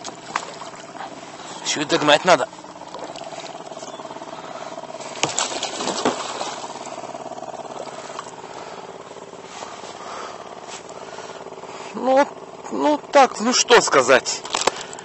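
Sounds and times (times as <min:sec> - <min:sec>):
fishing line hauled by hand: 0:00.0 - 0:08.4
water splashing: 0:00.0 - 0:08.8
faint steady hum: 0:00.0 - 0:15.0.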